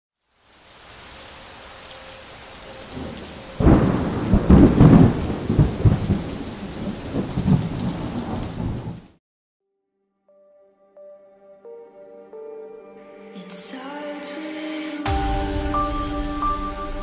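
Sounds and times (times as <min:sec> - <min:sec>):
rain hiss: 0:00.2 - 0:09.1, 0:14.8 - 0:17.0
thunder rolling: 0:02.8 - 0:09.2
loud thunderclap: 0:03.0 - 0:09.2.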